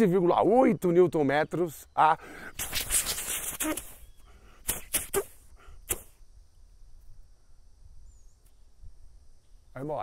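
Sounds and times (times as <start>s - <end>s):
faint high hiss: 2.0s - 10.0s
sharp clicks: 2.5s - 4.0s, 4.6s - 6.2s.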